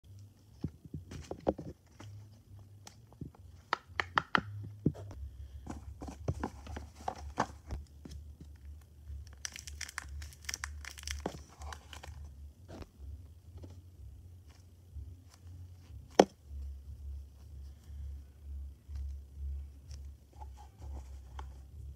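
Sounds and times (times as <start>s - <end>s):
plastic crinkling: 9.1s - 12.2s.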